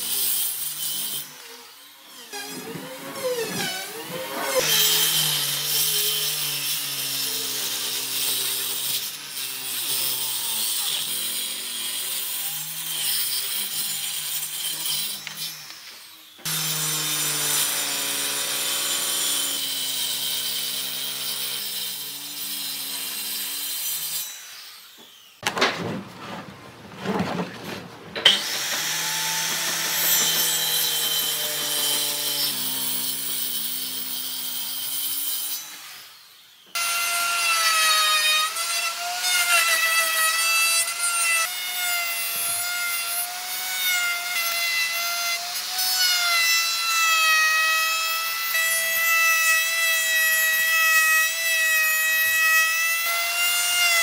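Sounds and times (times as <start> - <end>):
circular saw cutting wood: 0.0 - 25.4, 28.1 - 54.0
router cutting wood: 0.0 - 25.4, 28.2 - 54.0
rough scraping noise: 25.5 - 30.6.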